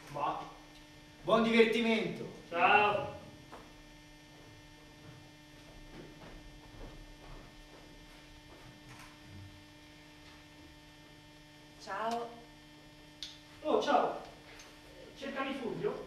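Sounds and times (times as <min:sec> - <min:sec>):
electrical mains hum: 0:00.0 - 0:16.0
footsteps on wooden stage: 0:03.4 - 0:08.9.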